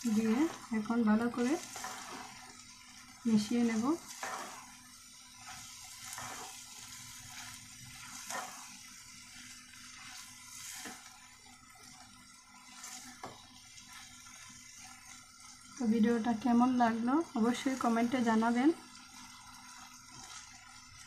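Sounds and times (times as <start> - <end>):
spatula stirring thick curry: 0.0 - 3.0, 3.9 - 15.2.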